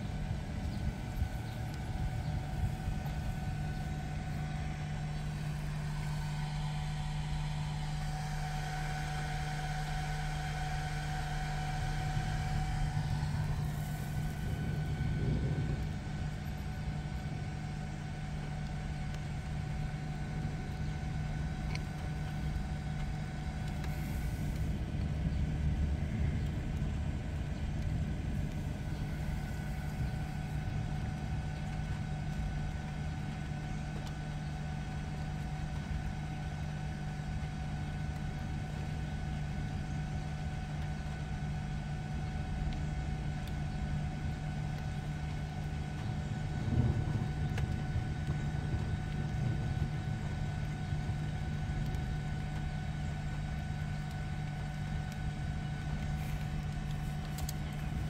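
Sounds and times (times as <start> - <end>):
faint whine: 0.0 - 58.0
vehicle idling hum: 0.0 - 58.0.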